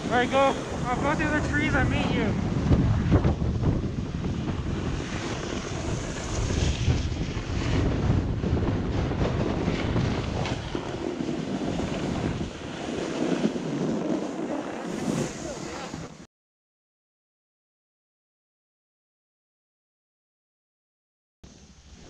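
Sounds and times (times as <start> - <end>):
skis sliding over snow: 0.0 - 2.7, 3.7 - 16.2
wind buffeting microphone: 0.0 - 16.2.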